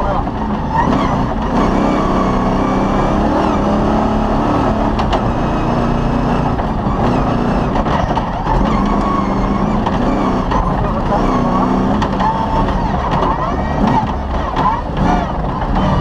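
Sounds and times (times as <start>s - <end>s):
rally car engine revving: 0.0s - 16.0s
sharp knocks of car jolting: 6.4s - 16.0s.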